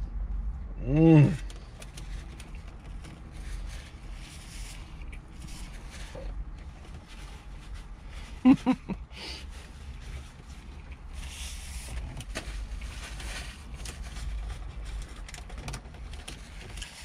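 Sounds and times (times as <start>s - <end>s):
paper napkin rustling: 2.0s - 8.7s.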